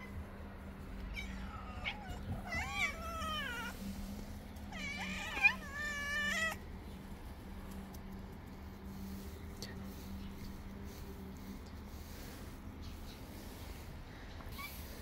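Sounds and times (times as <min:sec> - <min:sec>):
cats meowing: 0:01.0 - 0:03.9, 0:04.6 - 0:06.6.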